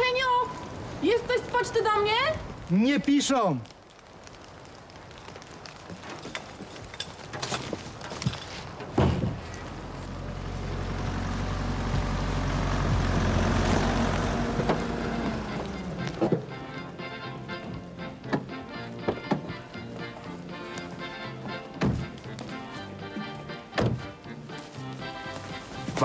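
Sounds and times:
car engine driving up: 9.6s - 16.9s.

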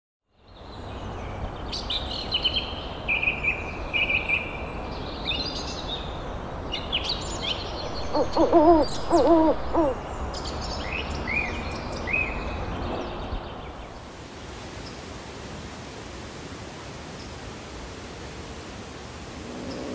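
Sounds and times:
songbirds chirping: 0.3s - 15.1s, 17.1s - 19.9s
owl hooting: 7.9s - 10.1s.

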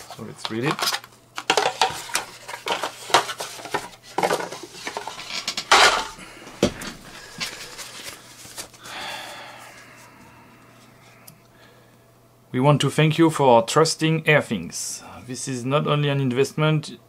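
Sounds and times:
packaging rustling: 0.0s - 9.0s.

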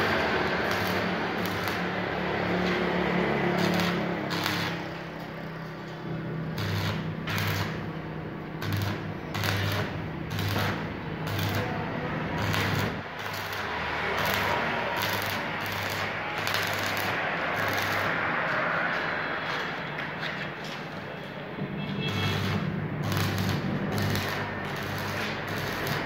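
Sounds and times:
arc welding crackling hiss: 0.0s - 2.1s, 3.5s - 5.4s, 6.5s - 7.9s, 8.6s - 11.8s, 12.4s - 18.2s, 22.1s - 26.0s
welding machine hum: 0.0s - 19.7s, 21.9s - 26.0s.

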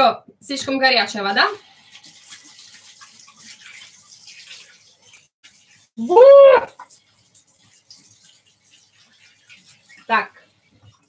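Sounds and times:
high-pitched vocal cry: 6.0s - 6.8s.

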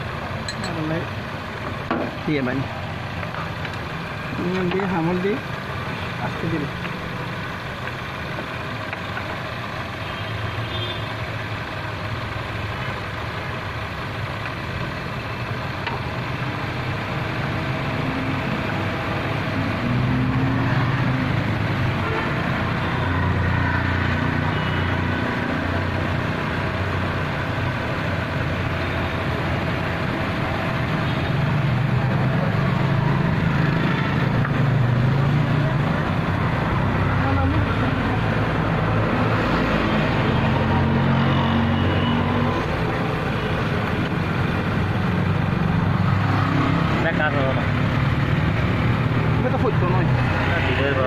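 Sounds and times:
vehicle engine rumbling: 0.0s - 51.0s.

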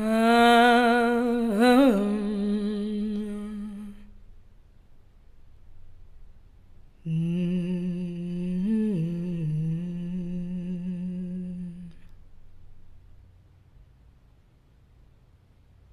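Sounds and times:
person humming low note: 0.0s - 4.2s, 7.0s - 12.7s.

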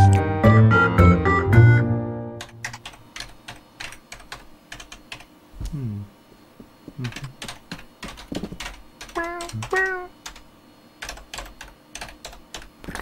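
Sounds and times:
keyboard typing: 2.4s - 5.3s, 7.0s - 13.0s.

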